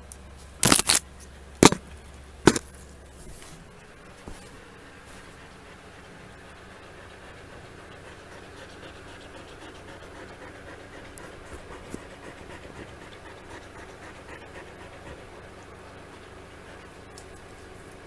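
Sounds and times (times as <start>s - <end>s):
dog panting: 4.8s - 18.0s.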